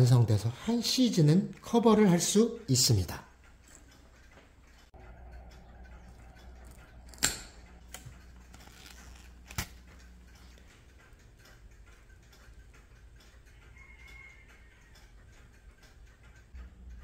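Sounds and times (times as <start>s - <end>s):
faint regular ticking: 0.0s - 17.0s
side cutters snapping wire: 6.7s - 10.1s.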